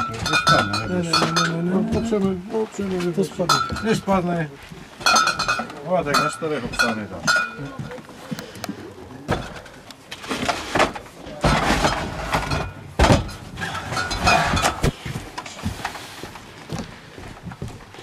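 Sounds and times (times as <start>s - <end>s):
keg and crates clattering: 0.0s - 4.3s, 9.2s - 16.0s.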